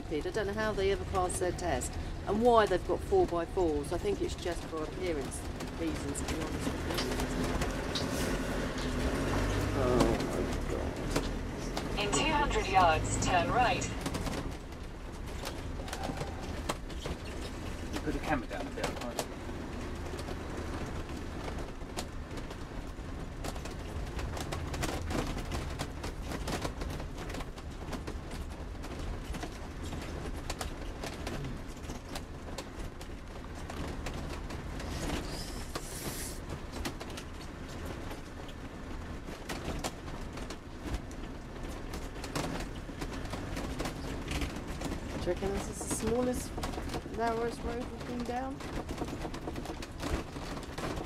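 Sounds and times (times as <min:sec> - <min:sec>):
engine and road rumble: 0:00.0 - 0:51.0
small clicks and rattles: 0:00.8 - 0:12.4, 0:13.9 - 0:51.0
brief hiss: 0:35.0 - 0:36.4.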